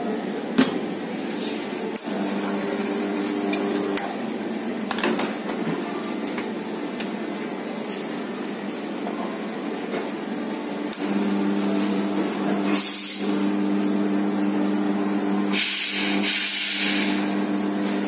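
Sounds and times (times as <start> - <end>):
espresso machine humming: 1.8 - 4.9, 10.6 - 18.0.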